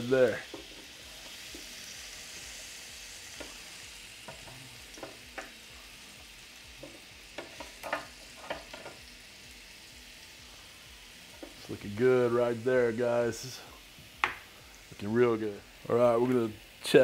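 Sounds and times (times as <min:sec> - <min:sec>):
steaks sizzling on a grill: 0:00.0 - 0:17.0
tongs clicking on grill: 0:06.8 - 0:09.0.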